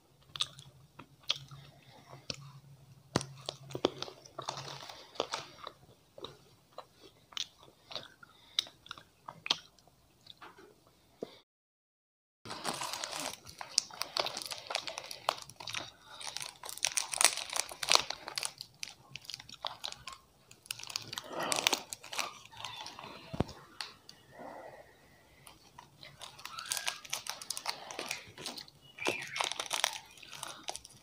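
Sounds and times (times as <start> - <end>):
plastic wrapper crinkling: 12.5 - 24.0, 25.4 - 31.0.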